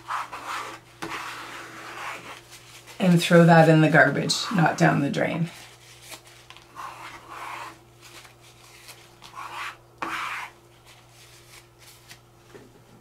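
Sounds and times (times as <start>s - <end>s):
scraper rasping on palette: 0.0s - 3.1s, 6.7s - 7.8s, 9.3s - 10.6s.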